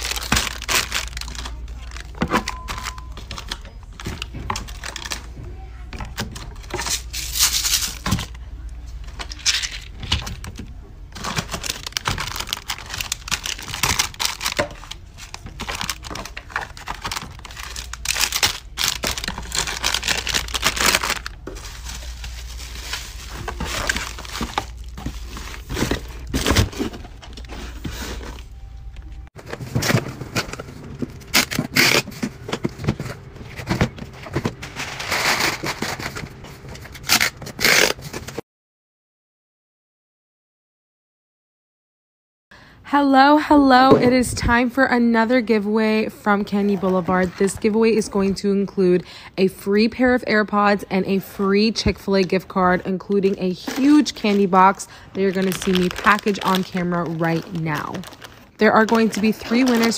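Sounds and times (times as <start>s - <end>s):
plastic wrappers crinkling: 0.0s - 5.4s, 6.0s - 8.4s, 9.1s - 38.4s, 53.2s - 59.9s
packing tape ripping off tape gun: 31.3s - 32.2s, 37.0s - 38.4s.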